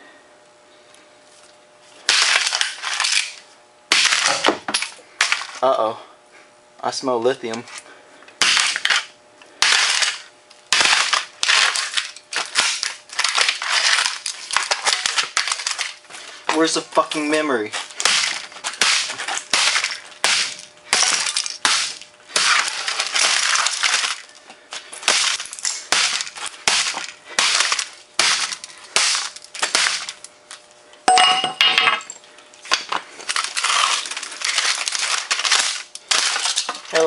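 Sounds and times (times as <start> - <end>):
hammer smashing plastic case: 2.1 - 5.6, 8.4 - 16.0, 18.0 - 24.3, 25.0 - 30.2, 32.8 - 37.0.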